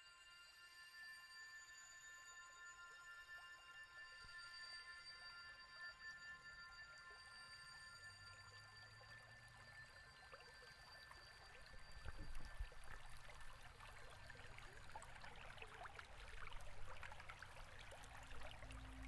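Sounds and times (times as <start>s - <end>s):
small stream trickling: 8.2s - 19.0s.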